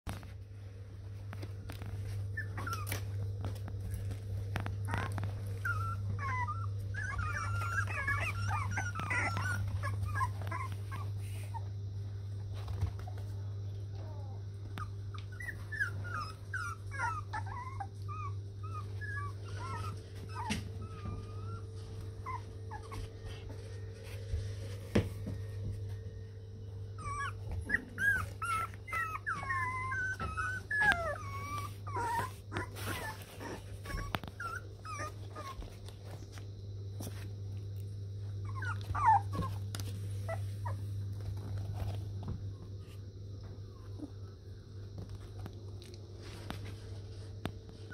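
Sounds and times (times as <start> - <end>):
steady low hum: 0.1 - 47.9
puppies whimpering and squeaking: 1.4 - 11.7, 13.9 - 24.8, 26.7 - 36.4, 38.2 - 42.3.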